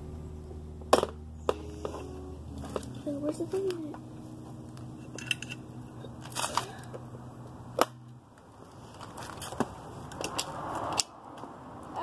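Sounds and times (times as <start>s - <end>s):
faint low hum: 0.0s - 8.3s
clicks and knocks of bike controls: 7.8s - 11.5s.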